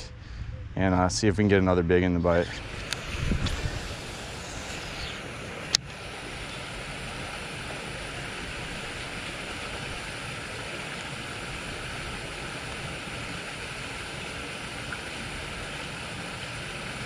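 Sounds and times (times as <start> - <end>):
wind noise on microphone: 0.0 - 5.4.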